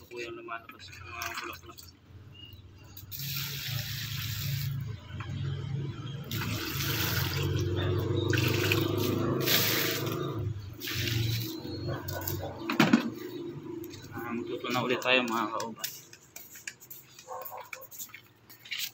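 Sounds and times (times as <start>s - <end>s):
water pouring and splashing on mulch: 0.8s - 1.8s, 3.1s - 4.9s, 6.3s - 12.4s.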